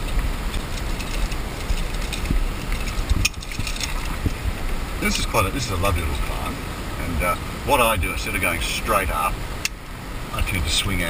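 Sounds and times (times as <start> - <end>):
rope and metal gear handled: 0.0 - 4.4
low steady rumble: 0.0 - 11.0.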